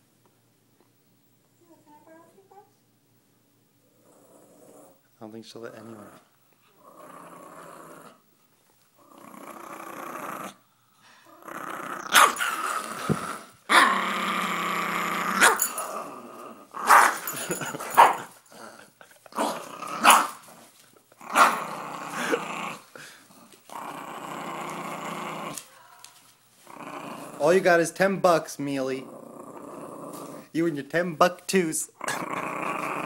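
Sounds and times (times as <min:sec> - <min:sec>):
puppy growling: 0:03.8 - 0:05.0, 0:05.6 - 0:08.3, 0:09.0 - 0:25.8, 0:26.6 - 0:27.9, 0:28.8 - 0:30.6, 0:31.9 - 0:33.0
puppy barking: 0:12.1 - 0:12.4, 0:15.4 - 0:15.7, 0:16.8 - 0:17.2, 0:18.0 - 0:18.3, 0:20.0 - 0:20.4.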